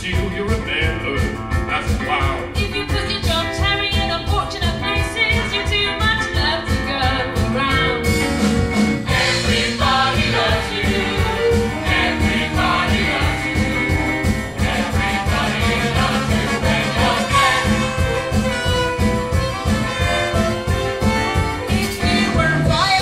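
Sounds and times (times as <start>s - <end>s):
band with steady beat: 0.0s - 23.0s
voices singing: 9.0s - 18.6s, 19.7s - 23.0s.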